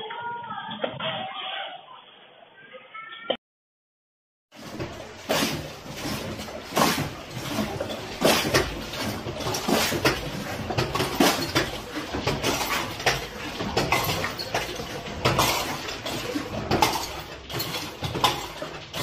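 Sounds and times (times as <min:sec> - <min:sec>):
chandelier glass clinking and rattling: 0:04.7 - 0:19.0.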